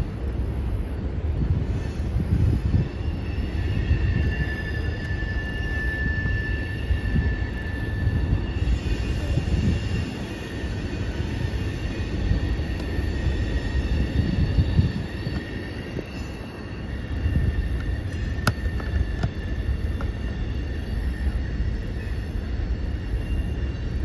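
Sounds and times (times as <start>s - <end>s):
freight train rumbling: 0.0s - 24.0s
high-pitched wheel squeal: 1.8s - 24.0s.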